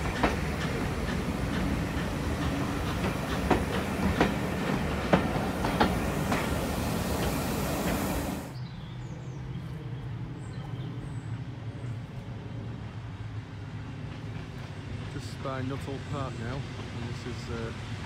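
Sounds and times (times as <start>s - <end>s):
wheels clicking on rail joints: 0.0s - 8.6s
train coaches rumbling past: 0.0s - 18.0s.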